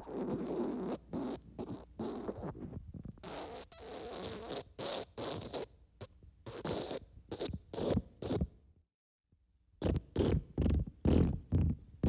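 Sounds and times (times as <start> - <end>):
wet fart sounds: 10.2 - 11.8.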